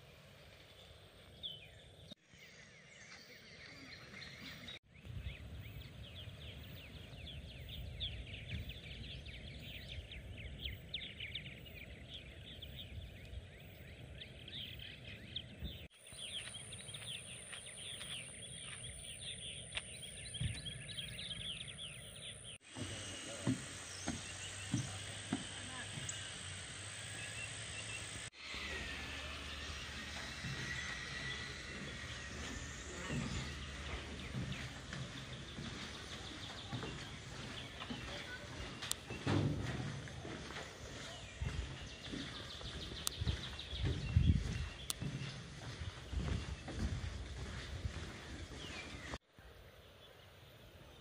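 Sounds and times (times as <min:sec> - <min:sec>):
small birds chirping: 0:00.3 - 0:51.0
footsteps on wooden boardwalk: 0:05.6 - 0:27.3, 0:29.5 - 0:49.2
high-pitched insect buzz: 0:22.7 - 0:34.2.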